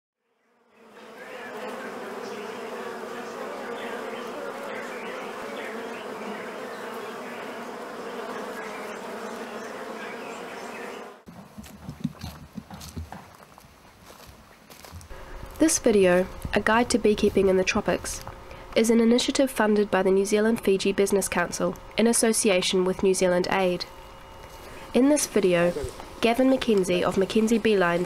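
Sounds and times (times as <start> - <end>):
bees buzzing: 0.3 - 13.7, 15.1 - 28.0
knocks and rustles: 11.3 - 13.6.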